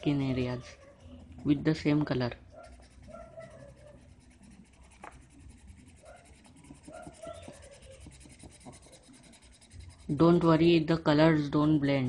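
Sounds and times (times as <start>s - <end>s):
pencil scratching on paper: 0.0s - 10.9s.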